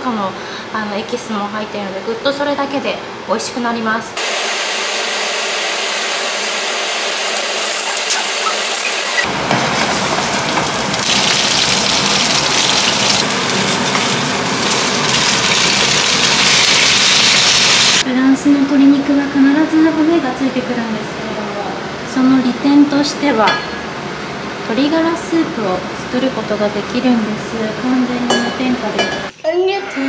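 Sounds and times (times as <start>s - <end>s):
food sizzling in a pan: 4.3s - 18.0s.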